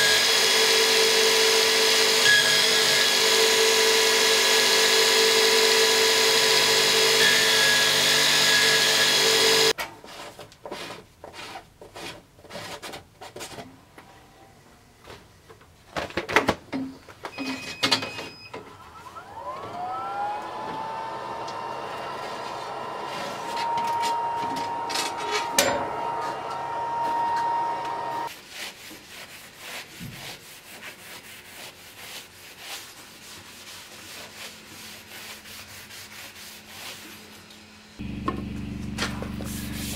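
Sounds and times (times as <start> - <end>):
belt grinder running: 0.0 - 9.7, 19.4 - 28.3
steady whine: 18.8 - 28.3
blade rubbed by hand: 39.2 - 39.9.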